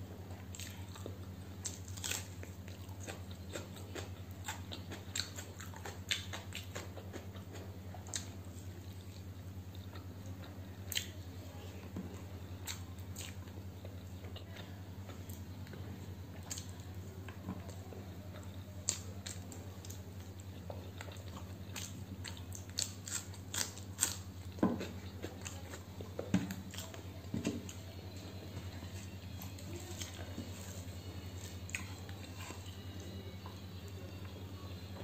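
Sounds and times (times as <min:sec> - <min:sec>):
steady low hum: 0:00.0 - 0:35.0
chewing with wet mouth clicks: 0:00.4 - 0:11.2, 0:12.6 - 0:27.0, 0:31.4 - 0:33.6.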